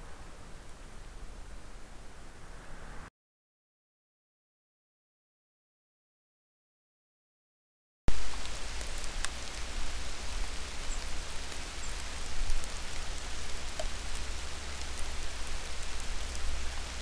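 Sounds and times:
steady hiss: 0.0s - 3.1s, 8.1s - 17.0s
faint ticks: 10.9s - 16.6s.

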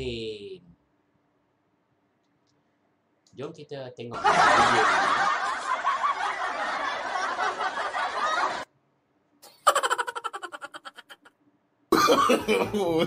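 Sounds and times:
person laughing: 9.4s - 11.3s, 11.9s - 13.0s.

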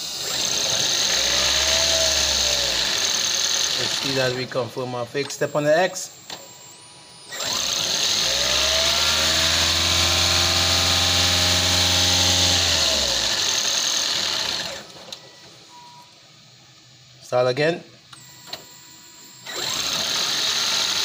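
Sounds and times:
car engine starting and revving: 0.2s - 4.2s, 7.4s - 14.9s.

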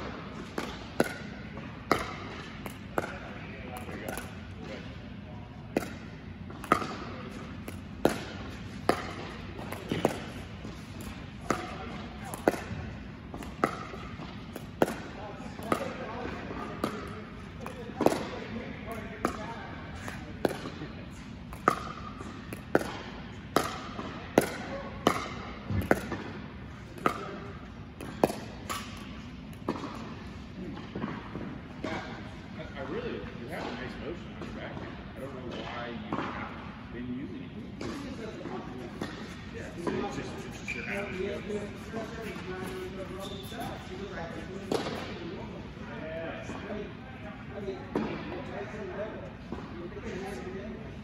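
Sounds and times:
ball bouncing on hard court: 0.3s - 4.9s, 5.7s - 32.2s, 37.8s - 45.6s
paddles hitting plastic ball: 5.7s - 20.8s, 21.4s - 26.3s, 28.0s - 30.2s.

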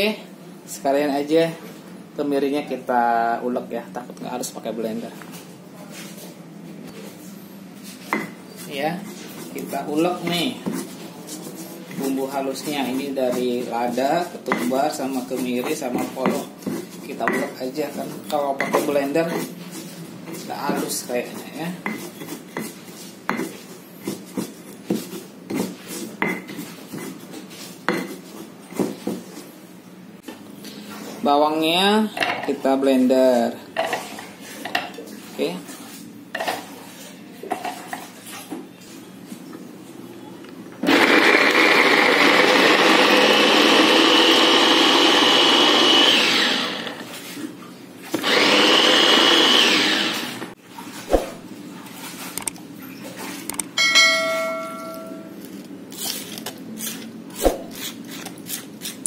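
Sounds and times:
stone pestle grinding spices: 9.1s - 28.9s, 55.9s - 59.0s
electric food chopper whining: 40.8s - 47.1s, 48.2s - 50.5s.

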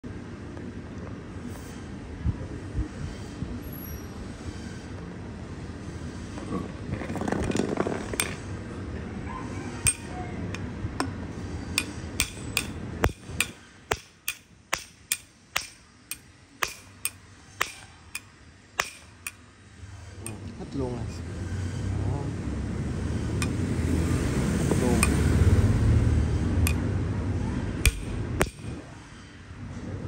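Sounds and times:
hammer tapping metal: 9.9s - 19.4s, 20.2s - 20.5s, 23.4s - 23.6s, 25.0s - 25.3s, 26.6s - 26.9s, 27.8s - 28.8s.

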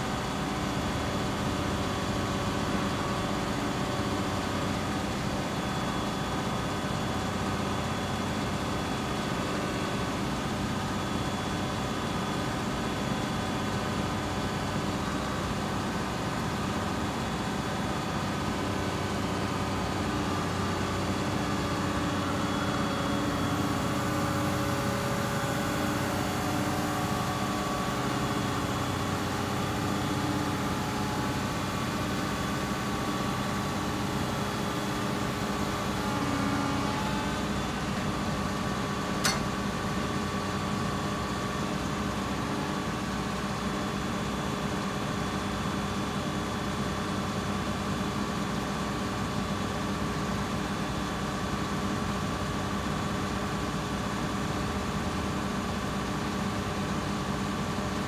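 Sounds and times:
sharp click: 39.2s - 39.5s.

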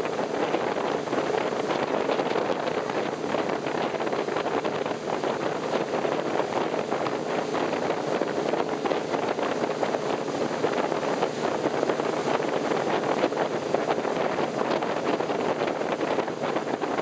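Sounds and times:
boat engine: 0.0s - 17.0s
wake water rushing: 0.0s - 17.0s
wind buffeting microphone: 0.0s - 17.0s.

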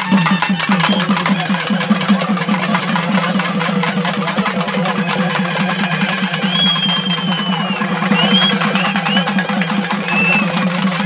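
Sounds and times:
hand drums fast driving beat: 0.0s - 11.0s
rattle of drums: 0.0s - 11.0s
high whistle: 6.2s - 10.7s.

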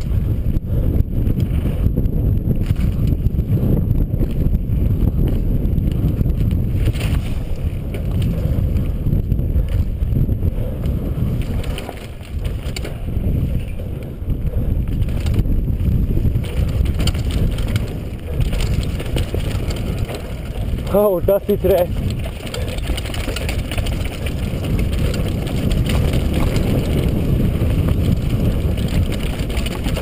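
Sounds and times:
bike rattles and clicks: 0.0s - 30.0s
wind rumble on microphone: 0.0s - 30.0s
tyres on dirt: 10.9s - 30.0s.

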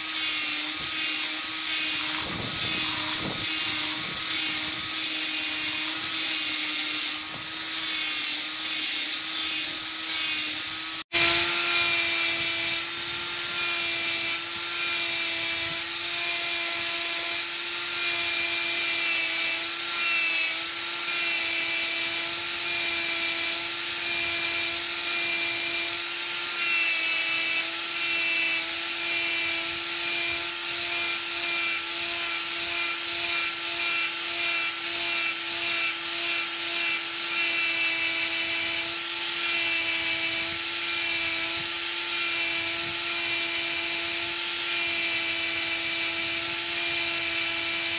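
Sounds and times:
sanding disc grinding steel: 0.0s - 47.9s.

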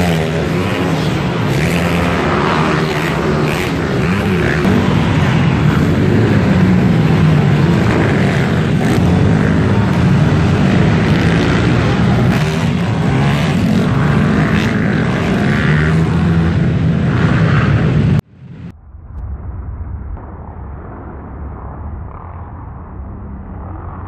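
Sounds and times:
pit bike engines revving: 0.0s - 18.2s.

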